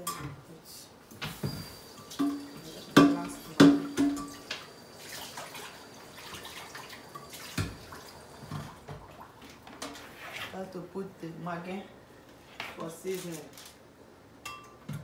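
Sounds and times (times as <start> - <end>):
metal clanking on cooking pot: 2.0 - 4.6.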